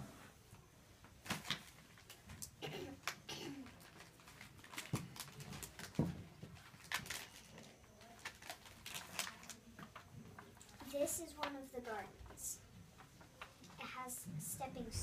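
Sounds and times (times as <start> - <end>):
paper rustling and crinkling: 3.6 - 12.0.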